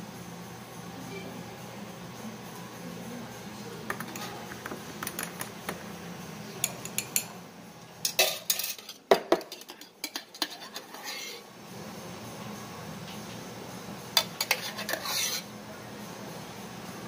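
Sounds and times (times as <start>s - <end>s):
spoon clinking in ceramic mug: 6.6s - 7.3s.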